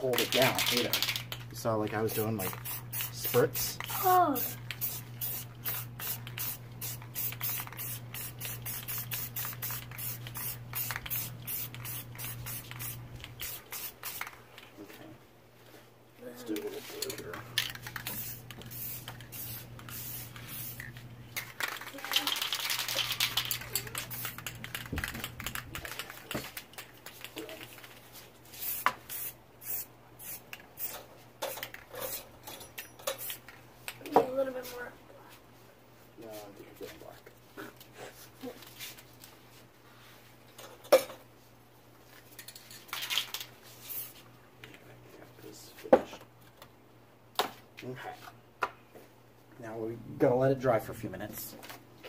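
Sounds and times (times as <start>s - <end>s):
spray paint can hissing in spurts: 2.1s - 14.4s, 17.6s - 20.9s, 21.6s - 26.7s, 28.5s - 32.2s.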